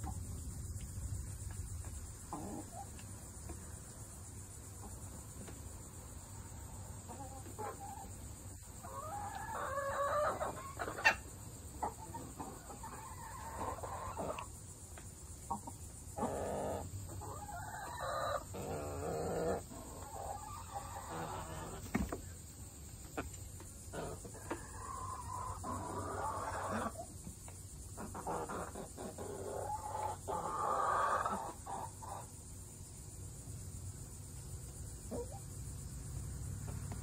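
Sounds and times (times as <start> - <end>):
hens clucking: 1.9 - 3.6, 6.4 - 14.6, 15.4 - 32.4.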